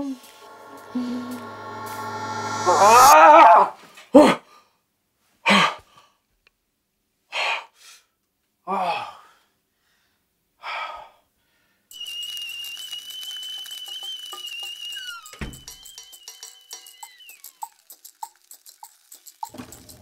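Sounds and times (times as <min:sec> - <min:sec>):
man gasping and groaning: 0:08.7 - 0:09.5
omelet sizzling in a frying pan: 0:11.9 - 0:20.0.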